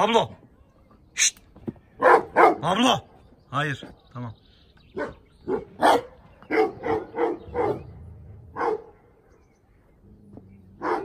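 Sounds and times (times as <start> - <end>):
dog barking: 2.0 - 2.8, 5.0 - 7.9, 8.5 - 9.1, 10.8 - 11.0.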